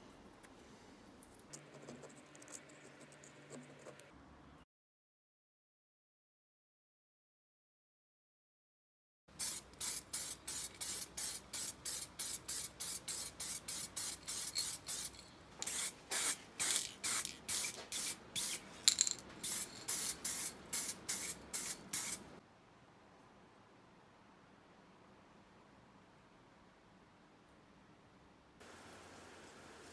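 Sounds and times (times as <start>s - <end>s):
spray paint hissing bursts: 9.4s - 18.6s, 19.4s - 22.3s.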